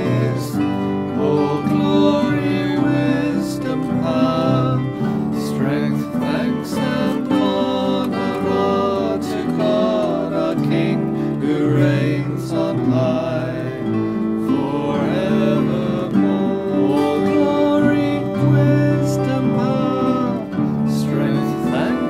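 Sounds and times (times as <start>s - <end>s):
acoustic guitar: 0.0s - 22.0s
congregation singing a hymn: 0.0s - 22.0s.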